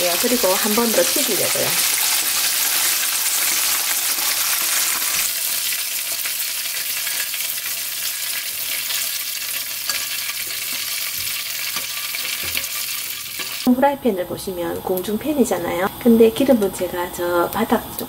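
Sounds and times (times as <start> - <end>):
chicken sizzling in hot oil: 0.0 - 13.8.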